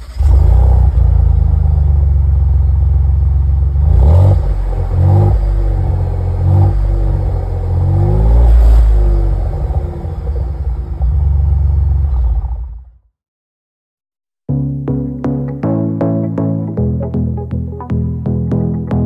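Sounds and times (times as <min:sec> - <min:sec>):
car engine idling and revving: 0:00.0 - 0:13.0.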